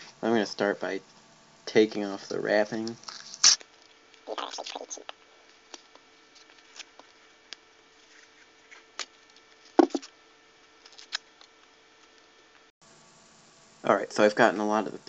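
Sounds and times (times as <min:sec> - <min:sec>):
paper wrapping crinkling: 0:02.8 - 0:04.0
paper ripping: 0:02.9 - 0:03.7.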